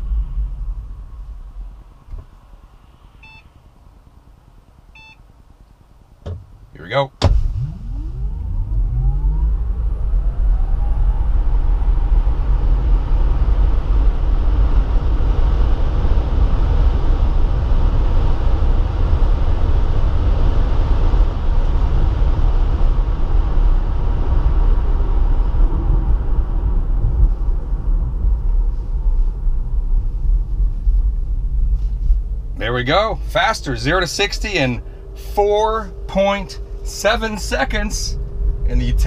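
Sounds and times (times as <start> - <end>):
deep road rumble: 0.0 - 39.0
tyre and wind noise: 6.2 - 32.7.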